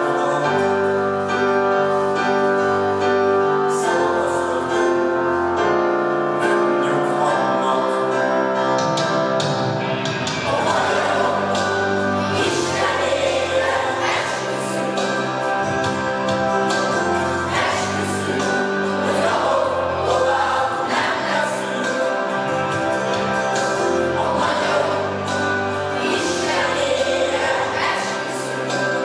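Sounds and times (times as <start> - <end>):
instrumental backing music: 0.0 - 29.0
children singing: 10.4 - 29.0.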